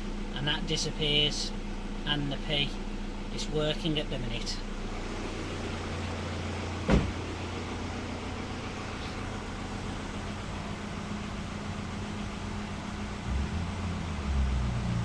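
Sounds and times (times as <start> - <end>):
diesel engine idling: 0.0 - 15.0
sharp knock: 6.8 - 7.2.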